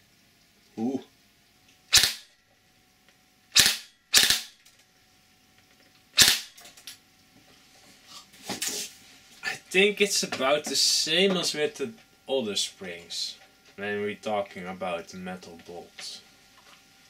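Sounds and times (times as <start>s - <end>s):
airsoft gun shots: 1.9s - 2.3s, 3.5s - 4.6s, 6.2s - 6.6s.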